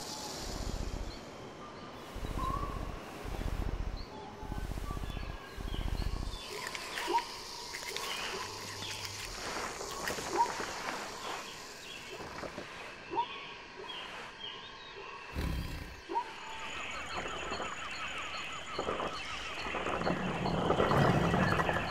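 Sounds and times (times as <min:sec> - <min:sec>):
low rhythmic rumble: 0:00.0 - 0:12.2
birds chirping and calling: 0:00.0 - 0:21.9.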